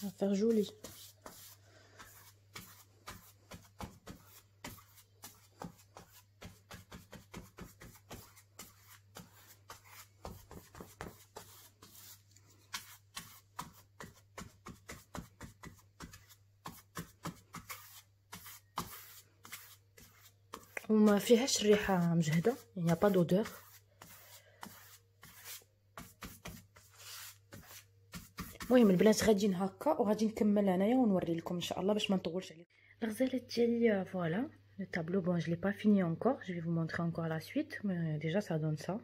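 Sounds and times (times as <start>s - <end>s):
paintbrush strokes on canvas: 0.0s - 29.4s.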